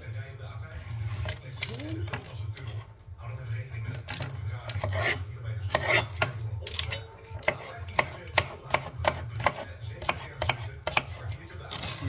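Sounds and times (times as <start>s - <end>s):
knife chopping on cutting board: 4.7s - 6.4s, 7.4s - 11.2s.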